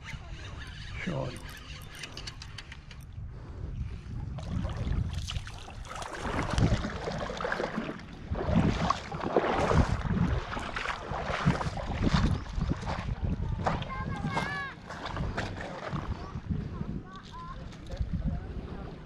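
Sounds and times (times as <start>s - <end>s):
wind buffeting microphone: 0.0s - 19.0s
splashing steps in water: 4.4s - 16.1s.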